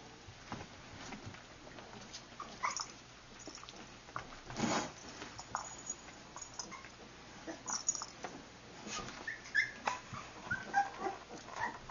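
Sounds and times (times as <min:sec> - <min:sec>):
dogs scuffling and rustling: 0:00.3 - 0:07.0
dog whimpers: 0:08.9 - 0:11.9.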